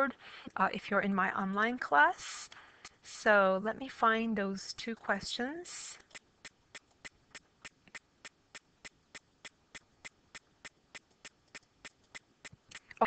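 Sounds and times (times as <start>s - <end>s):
computer mouse clicking: 6.0s - 13.0s.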